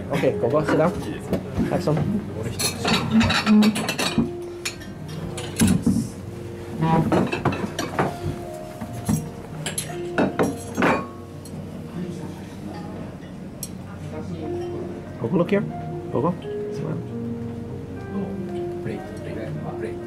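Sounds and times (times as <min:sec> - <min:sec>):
faint background music: 0:00.0 - 0:20.0
plates and cutlery clinking: 0:00.6 - 0:06.2, 0:06.8 - 0:11.6.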